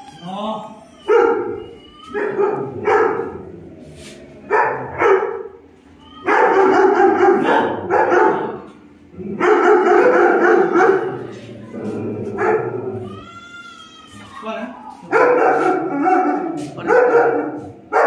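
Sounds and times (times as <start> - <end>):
dog barking: 1.1 - 3.5, 4.5 - 5.6, 6.3 - 8.7, 9.4 - 11.3, 12.3 - 12.9, 15.1 - 18.0.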